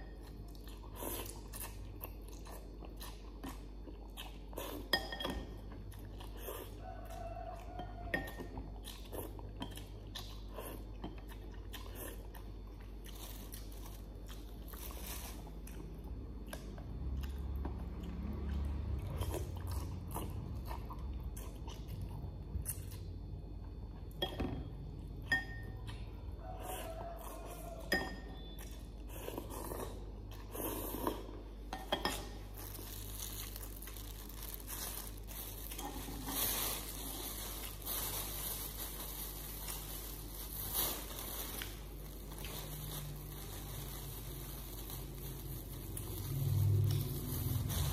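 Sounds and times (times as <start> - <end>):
person chewing noodles: 0.0 - 24.2, 24.9 - 47.9
plastic bags crinkling: 32.4 - 47.9.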